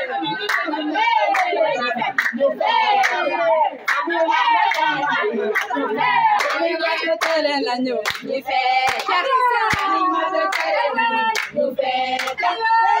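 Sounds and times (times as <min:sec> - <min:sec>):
women singing together: 0:00.0 - 0:13.0
hands clapping on beat: 0:00.4 - 0:05.8, 0:06.4 - 0:11.6, 0:12.2 - 0:12.5.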